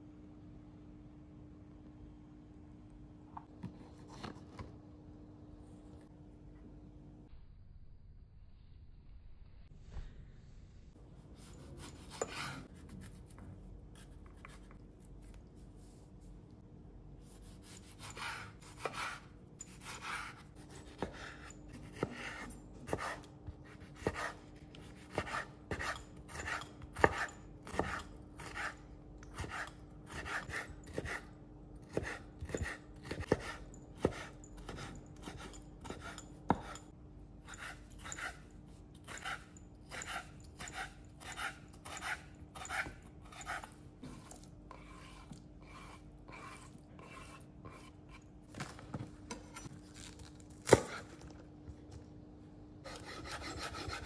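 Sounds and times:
knife chopping on wooden board: 17.4s - 28.8s, 31.9s - 36.8s, 50.6s - 51.1s.

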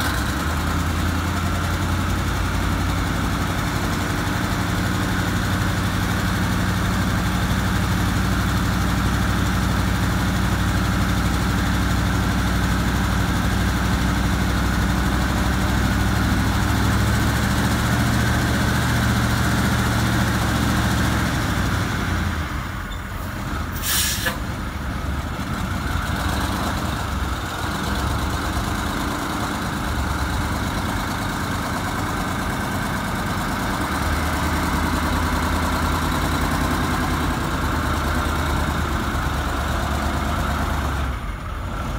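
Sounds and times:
diesel engine idling: 0.0s - 41.9s
air brakes hiss: 23.0s - 24.4s.

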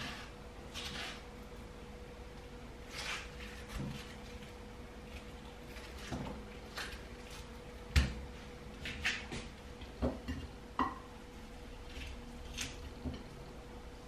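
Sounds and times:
knife cutting watermelon: 0.0s - 1.4s, 2.8s - 8.2s.

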